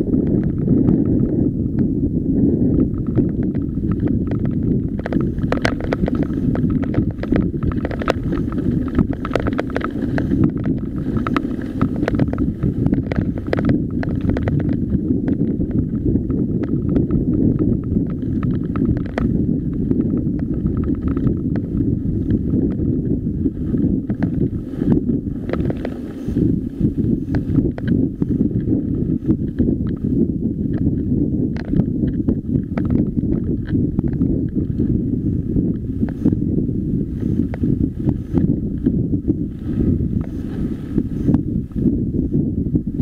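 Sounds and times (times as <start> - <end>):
bike tyres clicking over stones: 0.0 - 43.0
wind buffeting microphone: 0.0 - 43.0
bike chain and frame rattling: 2.9 - 30.2.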